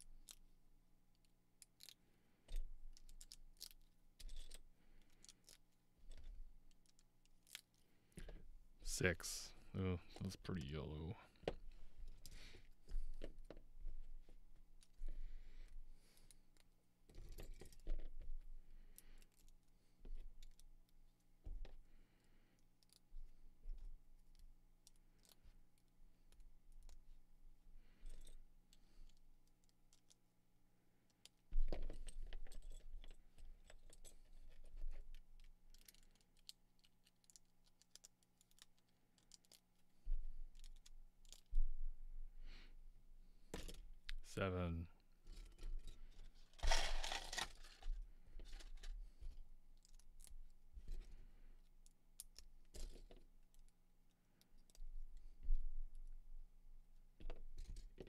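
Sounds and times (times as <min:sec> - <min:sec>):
plastic bricks clicking together: 0:46.6 - 0:47.8.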